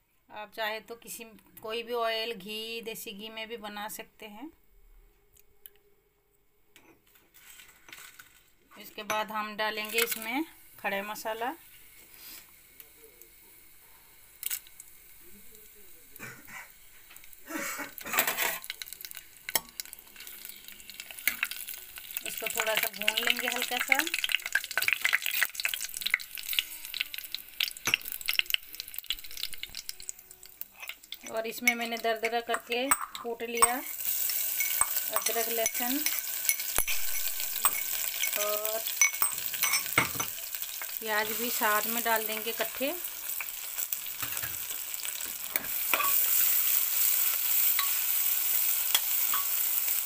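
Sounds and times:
spices sizzling in oil: 7.4 - 50.0
oil crackling and popping: 14.3 - 15.6, 17.1 - 50.0.

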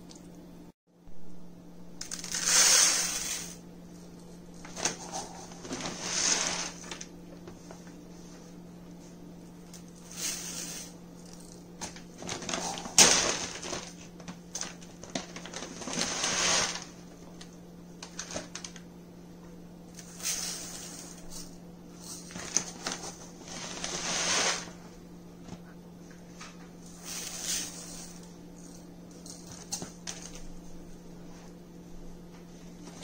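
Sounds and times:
rice pouring into plastic bowl: 2.1 - 3.6, 5.7 - 6.8, 15.2 - 16.9.

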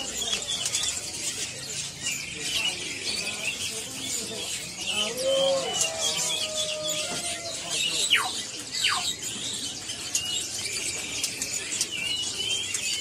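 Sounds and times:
finches chirping and twittering: 0.0 - 13.0.

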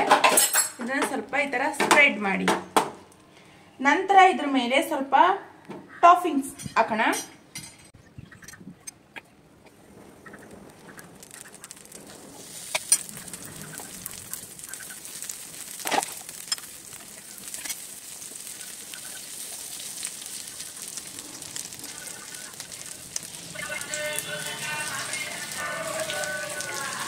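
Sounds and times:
batter sizzling in a pan: 10.4 - 27.0.

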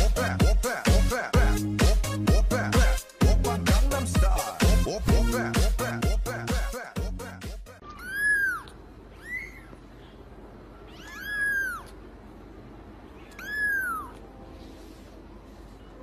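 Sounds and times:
kitten meowing: 7.8 - 9.8, 10.9 - 12.0, 13.2 - 14.2.

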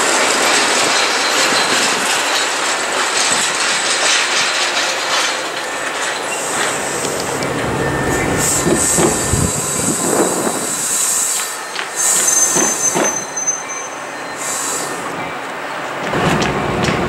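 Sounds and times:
train rumble: 0.0 - 17.0
train wheels clacking over rail joints: 0.0 - 17.0
high-pitched wheel squeal: 5.7 - 15.1.

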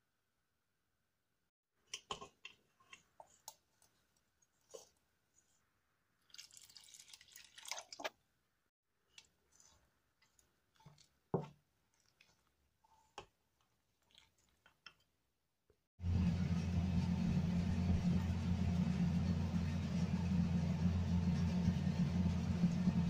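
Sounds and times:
spatula squelching in batter: 2.0 - 8.1, 9.1 - 15.1
water pouring into bowl: 6.3 - 8.1
loud steady hum: 16.0 - 23.0.

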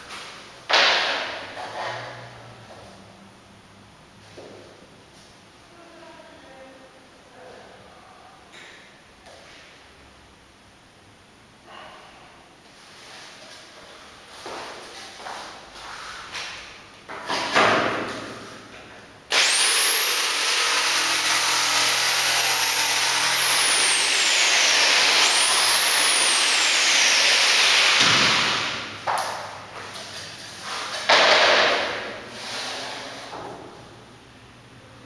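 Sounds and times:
electric saw cutting floorboard: 19.3 - 28.9.

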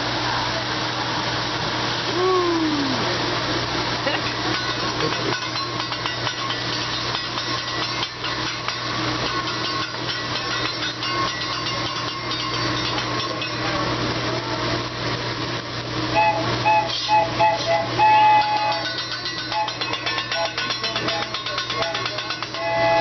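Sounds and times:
griddle sizzling: 0.0 - 23.0
train whistle toots: 16.1 - 18.9, 19.5 - 20.6, 21.8 - 23.0.

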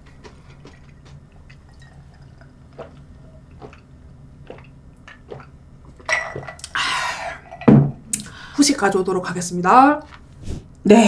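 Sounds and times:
swallowing gulps: 0.0 - 6.8.

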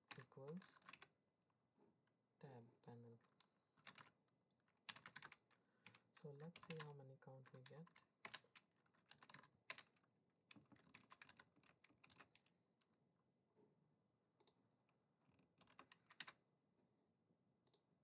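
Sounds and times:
faint keyboard typing: 0.0 - 1.2, 3.0 - 13.0, 14.4 - 16.4.

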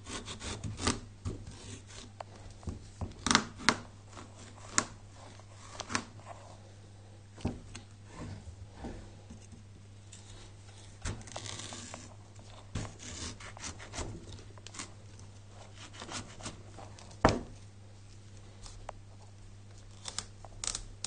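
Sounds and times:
knife scraping through squash: 0.0 - 2.2, 10.2 - 17.0
cracks and knocks on cutting board: 17.2 - 17.6.

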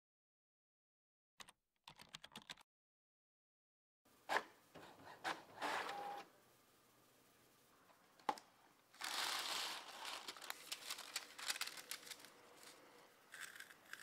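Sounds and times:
printer clicking and whirring: 4.3 - 6.3.

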